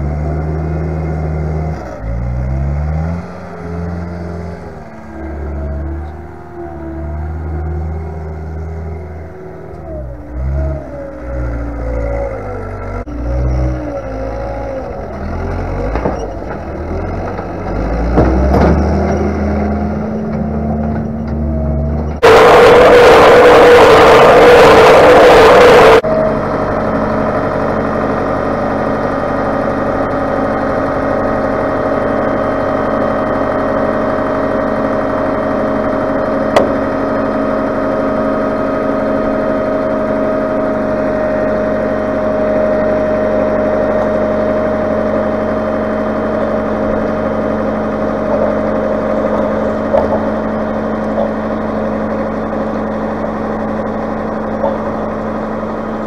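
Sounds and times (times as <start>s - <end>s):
tractor engine idling: 0.0s - 56.0s.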